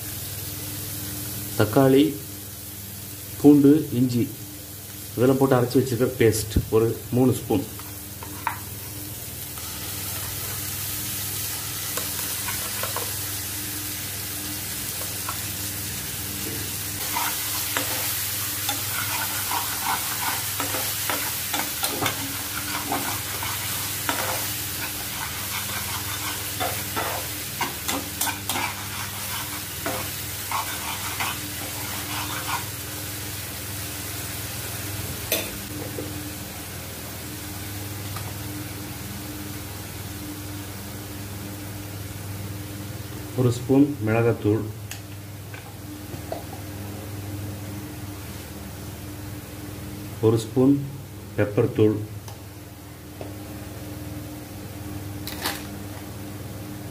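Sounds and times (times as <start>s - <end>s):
steady low hum: 4.3s - 56.9s
paste sizzling in hot oil: 7.3s - 34.7s
spatula scraping and tapping pan: 7.8s - 8.7s, 11.9s - 13.1s, 17.0s - 32.7s.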